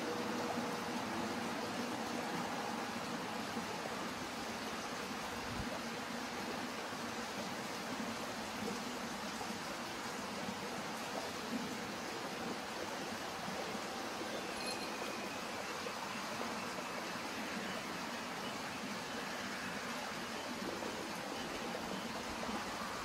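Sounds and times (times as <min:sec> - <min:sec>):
outdoor background hiss: 0:00.0 - 0:23.0
faint high chirp: 0:14.3 - 0:16.9.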